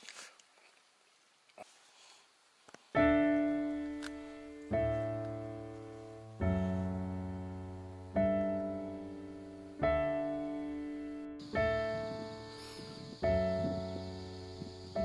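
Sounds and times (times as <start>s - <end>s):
slow piano chords: 3.0s - 15.0s.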